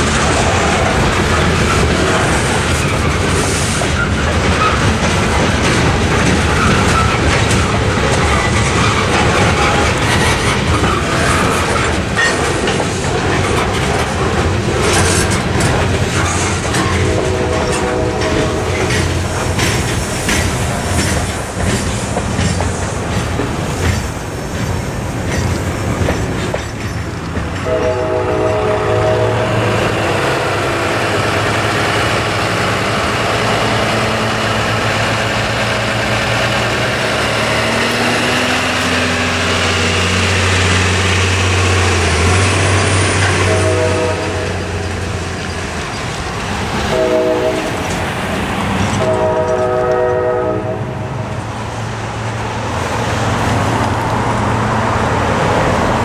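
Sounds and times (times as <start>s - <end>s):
train cars rumbling and clacking: 0.0s - 56.0s
locomotive air horn blasts: 17.0s - 19.0s, 27.6s - 29.7s, 43.3s - 44.8s, 46.9s - 47.8s, 49.0s - 51.1s.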